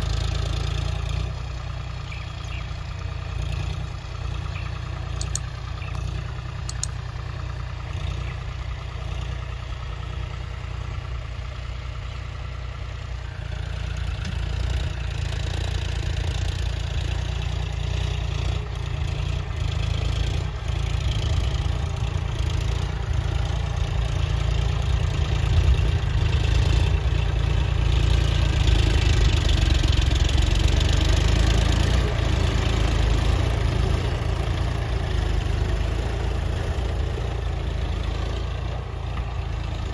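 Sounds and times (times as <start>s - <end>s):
tractor diesel engine running: 0.0s - 39.9s
disc harrow through soil: 13.4s - 39.9s.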